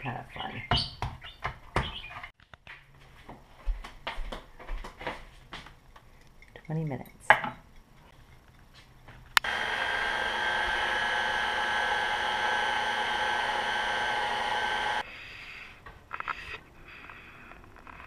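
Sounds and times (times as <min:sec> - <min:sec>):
stand mixer motor running: 0:09.4 - 0:15.0.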